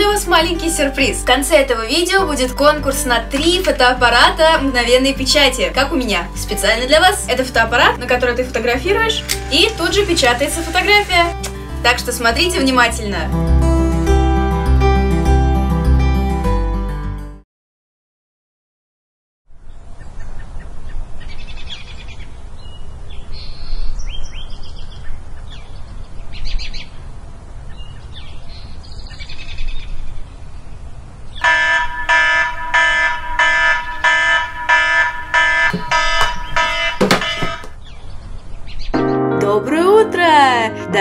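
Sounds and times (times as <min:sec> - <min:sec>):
birds chirping: 0:27.6 - 0:39.2
alarm clock beeping: 0:31.4 - 0:37.8
knocks: 0:35.4 - 0:37.8.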